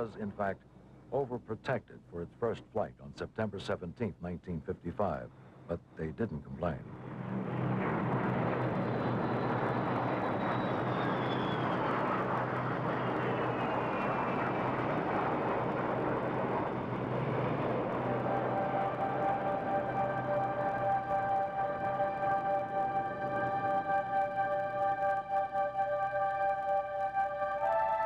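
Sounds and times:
aircraft engines droning: 0.0 - 2.8, 4.7 - 28.0
thin whine falling in pitch: 7.3 - 28.0
sustained musical tones: 14.7 - 28.0.

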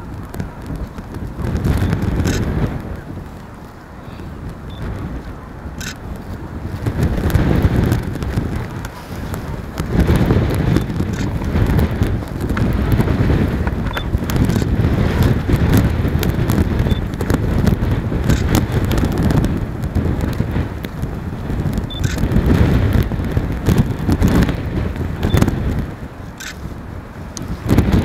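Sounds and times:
wind buffeting microphone: 0.0 - 28.0
faint clicks: 0.2 - 3.8, 4.4 - 6.4, 26.4 - 26.7.

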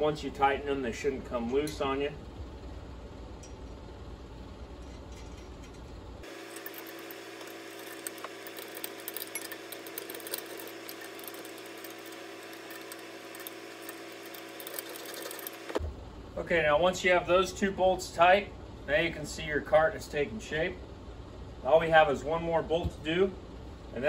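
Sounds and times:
steady hum: 0.0 - 24.0
hand tools clinking on metal: 5.0 - 15.7.

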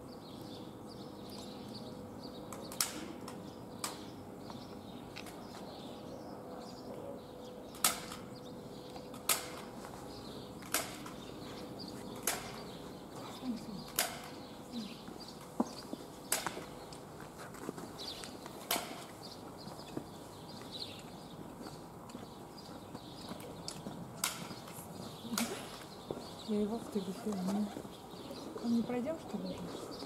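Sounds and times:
small birds chirping: 0.0 - 30.0
footsteps on stone paving: 15.0 - 30.0.

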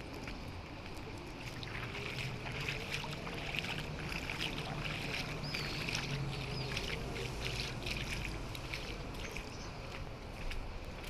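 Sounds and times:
footsteps splashing through water: 0.0 - 11.0.

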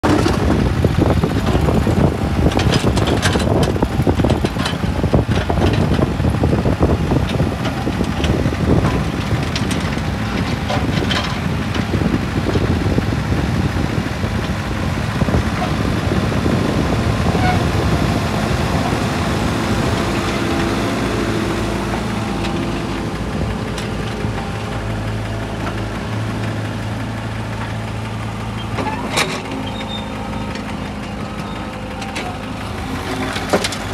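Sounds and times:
diesel engine humming: 0.0 - 33.9
diesel engine under hydraulic load: 0.0 - 33.9.

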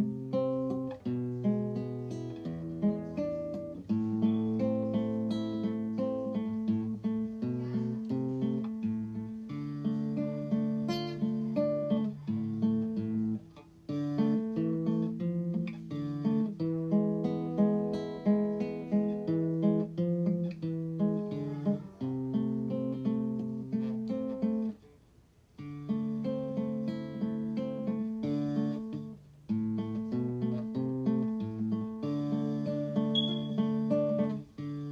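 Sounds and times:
acoustic guitar picking and strumming: 0.0 - 24.9, 25.6 - 34.9.

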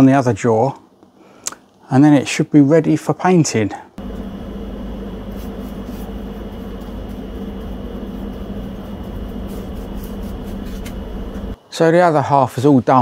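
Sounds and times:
machine hum: 4.0 - 11.6
paintbrush scratchy strokes: 4.0 - 11.6.

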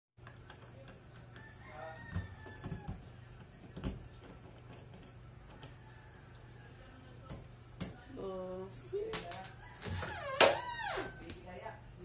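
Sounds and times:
distant rooster crowing: 1.3 - 3.4, 5.4 - 7.0, 9.5 - 11.3.

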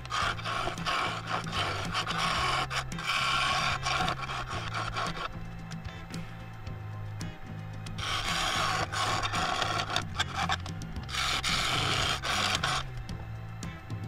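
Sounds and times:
tool rasping on spinning wood: 0.0 - 6.4, 7.9 - 13.2.

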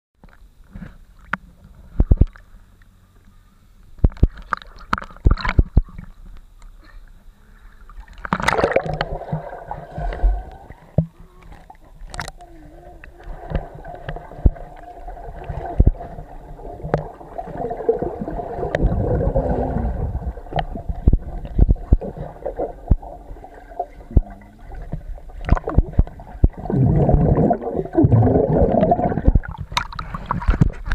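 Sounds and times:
underwater gurgling and bubbling: 7.8 - 30.9.

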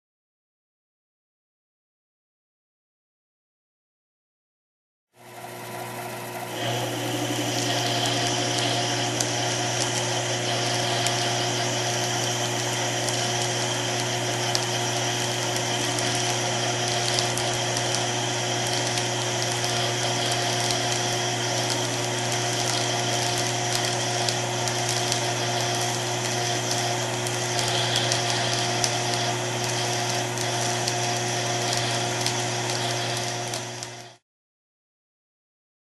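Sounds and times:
lathe motor hum: 5.2 - 34.2
hiss of metal cutting: 6.5 - 33.3
small ticks: 13.0 - 14.8, 15.5 - 26.9.

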